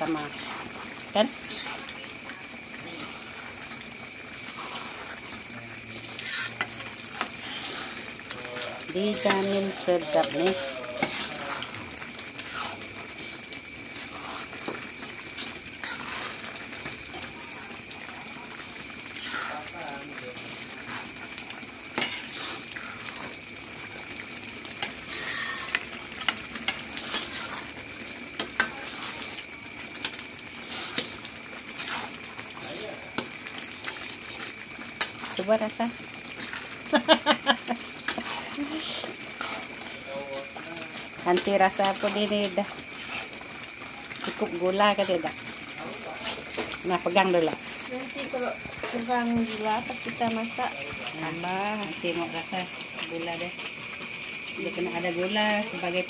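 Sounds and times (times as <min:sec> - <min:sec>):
ladle scraping a wok: 0:00.0 - 0:02.1, 0:02.8 - 0:17.3, 0:18.9 - 0:19.7, 0:20.4 - 0:35.6, 0:36.2 - 0:37.1, 0:37.8 - 0:47.9
sauce stirring and sizzling: 0:00.0 - 0:56.0
metal utensils clinking on woks: 0:06.2 - 0:11.7.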